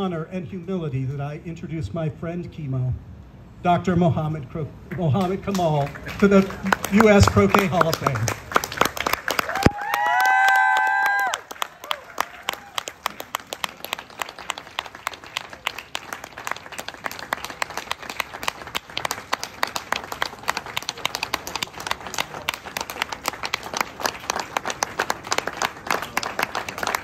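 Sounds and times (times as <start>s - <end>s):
audience applauding: 5.5s - 27.0s.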